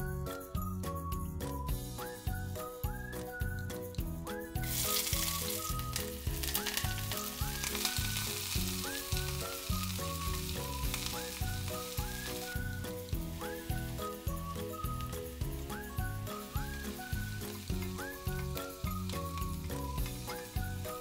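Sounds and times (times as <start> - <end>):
background music with whistled tune: 0.0 - 21.0
onion sizzling in hot oil: 4.5 - 21.0.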